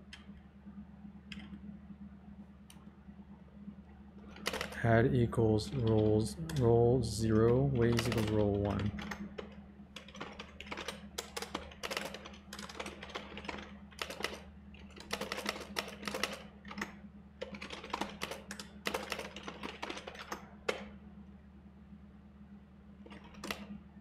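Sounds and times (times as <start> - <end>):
typing on computer keyboard: 4.3 - 4.8, 5.7 - 6.6, 7.3 - 20.9.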